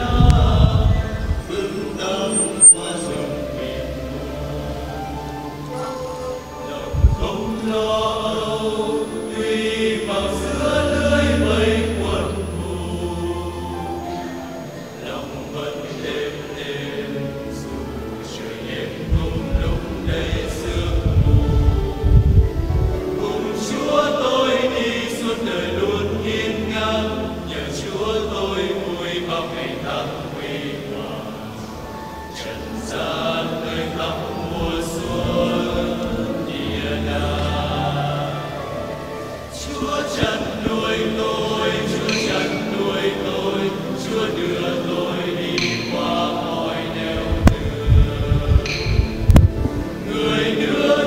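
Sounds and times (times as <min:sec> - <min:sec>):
choir singing a slow chant: 0:00.0 - 0:51.0
low thumps: 0:47.2 - 0:49.9.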